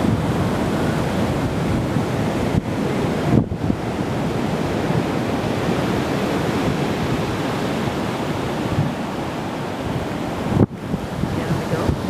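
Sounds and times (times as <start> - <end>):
ocean surf: 0.0 - 12.0
wind on microphone: 0.0 - 12.0.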